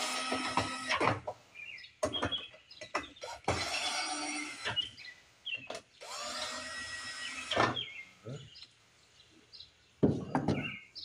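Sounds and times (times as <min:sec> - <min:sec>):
power drill running: 0:00.0 - 0:01.0, 0:03.2 - 0:04.8, 0:06.0 - 0:07.7
birds chirping: 0:00.7 - 0:11.0.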